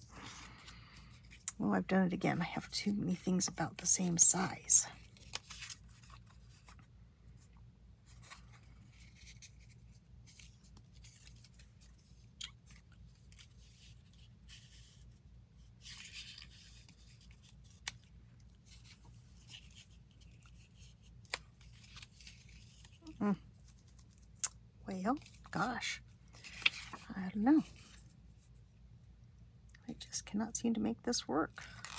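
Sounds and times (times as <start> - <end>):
low steady hum: 0.0 - 31.9
paper rustling: 5.0 - 24.4.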